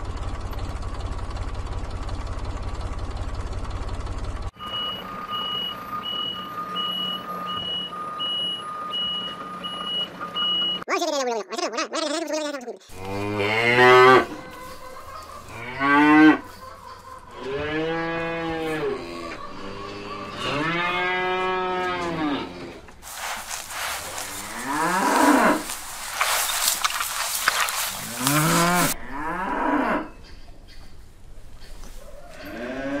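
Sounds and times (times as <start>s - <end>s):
cows mooing: 12.9s - 30.2s, 32.3s - 33.0s.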